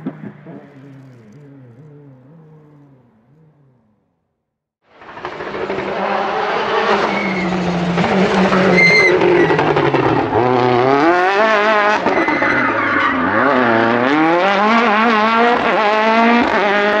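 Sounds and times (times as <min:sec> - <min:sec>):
racing car engine revving: 0:00.0 - 0:04.2, 0:05.0 - 0:17.0
brief high squeal: 0:08.6 - 0:09.6.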